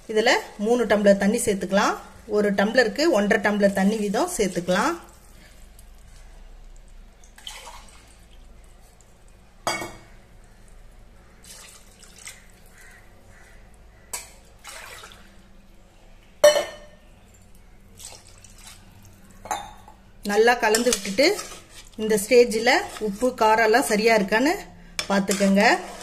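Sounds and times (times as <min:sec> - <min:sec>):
water pouring into liquid: 0:06.6 - 0:09.2, 0:11.4 - 0:12.7, 0:14.6 - 0:15.3, 0:17.9 - 0:19.2.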